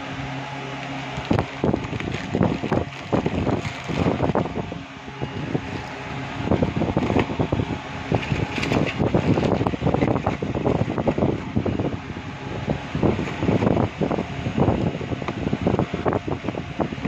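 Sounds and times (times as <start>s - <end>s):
plastic packaging crinkling: 0.7s - 4.6s, 5.2s - 7.4s
air rushing on microphone: 1.0s - 17.0s.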